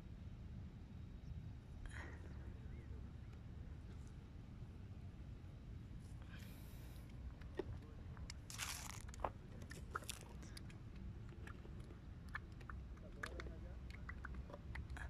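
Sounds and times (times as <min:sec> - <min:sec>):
light clicks and crackles: 0:07.1 - 0:15.0.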